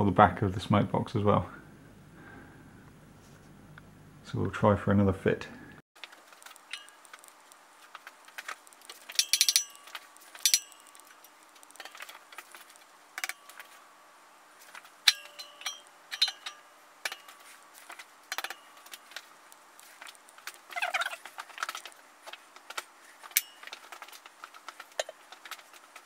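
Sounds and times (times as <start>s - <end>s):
metallic clinks and knocks: 8.9s - 13.8s, 15.0s - 19.3s, 23.2s - 26.0s.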